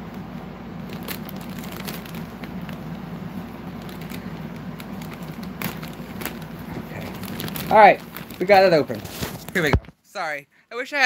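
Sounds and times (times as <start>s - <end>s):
steady low hum: 0.0s - 11.0s
plastic packaging crinkling: 0.7s - 9.8s.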